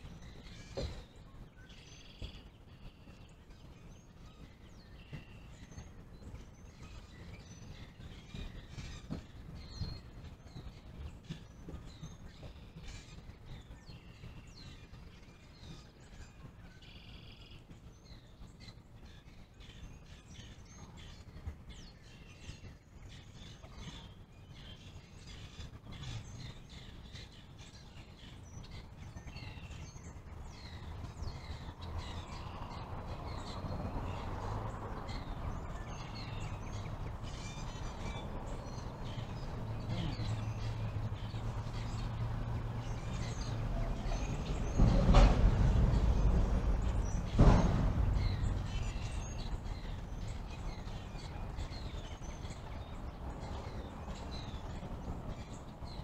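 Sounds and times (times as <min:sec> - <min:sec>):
road traffic: 0:00.0 - 0:02.6, 0:30.0 - 0:56.0
birds chirping: 0:00.0 - 0:56.0
passing vehicle rumble: 0:30.2 - 0:56.0.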